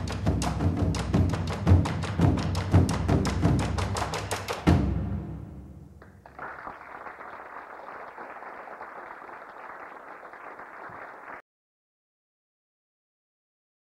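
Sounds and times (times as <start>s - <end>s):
muffled audience applause: 6.0s - 11.4s.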